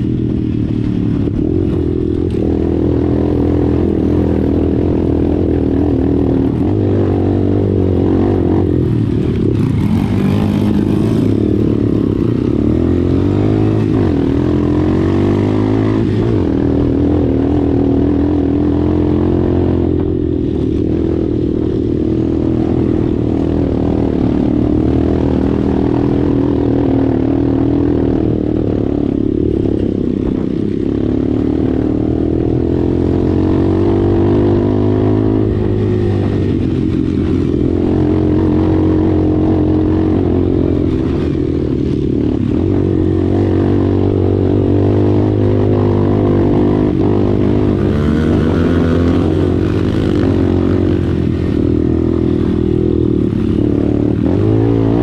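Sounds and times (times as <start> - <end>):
dirt bike engine running: 0.0 - 55.0.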